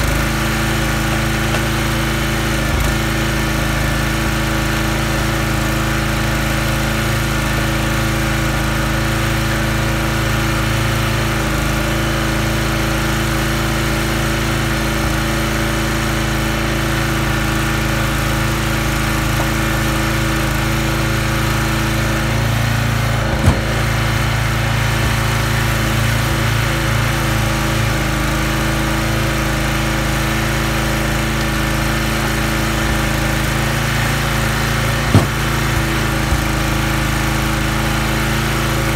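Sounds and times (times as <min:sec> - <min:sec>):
small engine running: 0:00.0 - 0:38.9
sharp knock: 0:35.1 - 0:35.6.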